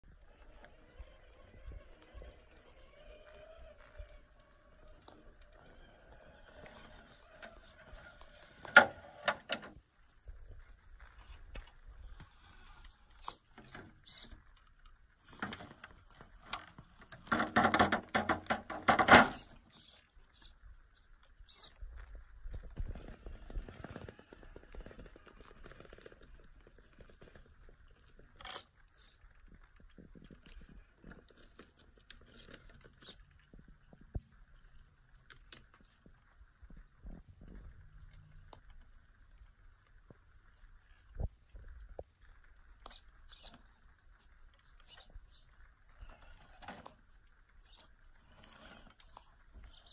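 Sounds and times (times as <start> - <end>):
rc crawler ticks and crackles: 0.0 - 49.9
scrabbling and clattering: 15.2 - 19.7
toy car tyres knocking on stone: 17.3 - 19.5.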